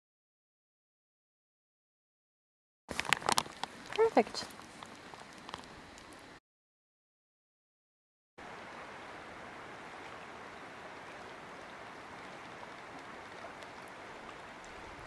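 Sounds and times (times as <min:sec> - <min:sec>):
small waves on a lake: 0:02.9 - 0:06.4, 0:08.4 - 0:15.0.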